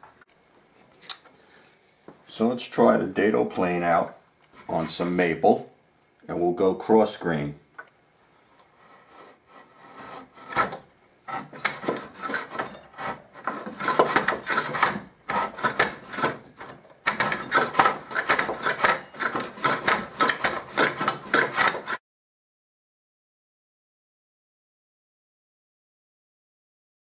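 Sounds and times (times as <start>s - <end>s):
hand plane rasping wood: 8.8s - 22.0s.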